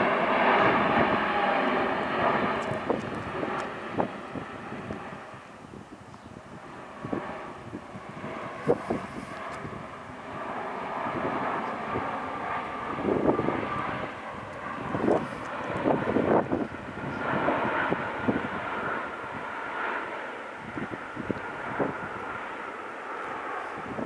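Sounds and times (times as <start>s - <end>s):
jet airliner passing overhead: 0.0s - 24.0s.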